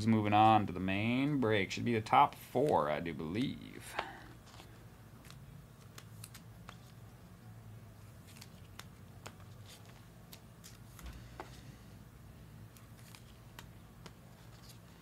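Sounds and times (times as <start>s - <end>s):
steady low hum: 0.0s - 15.0s
cards clicking on a tabletop: 3.4s - 7.0s, 12.7s - 14.8s.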